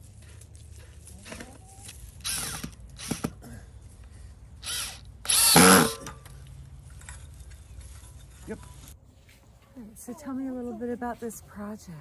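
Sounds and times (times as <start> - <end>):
cordless drill drilling into wood: 2.2 - 3.3, 4.6 - 6.0.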